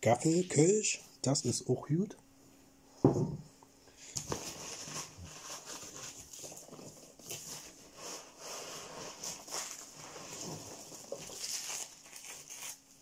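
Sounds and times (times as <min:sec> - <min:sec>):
packing material rustling: 0:04.1 - 0:13.0.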